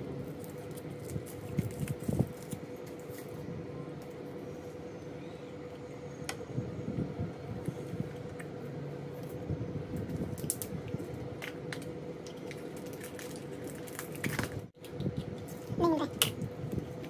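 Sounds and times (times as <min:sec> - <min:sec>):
faint steady hum: 0:00.0 - 0:17.0
foil wrapper crinkling: 0:00.2 - 0:03.4, 0:10.0 - 0:14.7.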